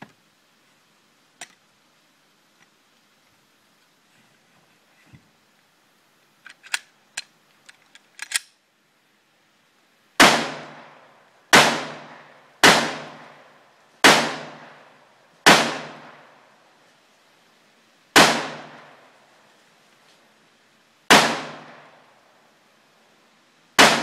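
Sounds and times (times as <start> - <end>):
pistol shots: 10.2 - 10.9, 11.5 - 13.3, 14.0 - 14.8, 15.4 - 16.2, 18.2 - 18.8, 21.1 - 21.9, 23.8 - 24.0.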